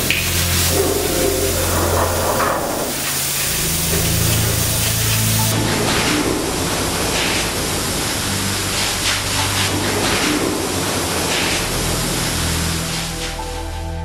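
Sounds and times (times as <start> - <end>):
spray gun hissing: 0.0 - 5.6.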